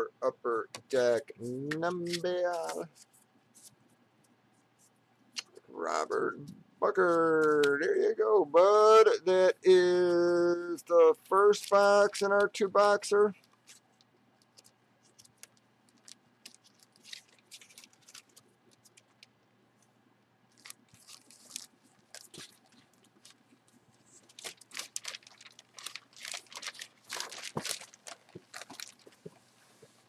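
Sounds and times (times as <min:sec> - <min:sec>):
plastic bag crinkling: 0:13.3 - 0:19.3, 0:20.5 - 0:30.0.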